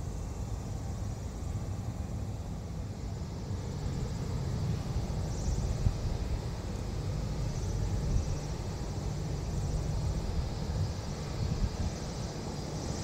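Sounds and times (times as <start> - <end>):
faint high-pitched engine whine: 0.0 - 13.0
jet airliner taxiing at idle: 0.0 - 13.0
wind buffeting microphone: 4.0 - 13.0.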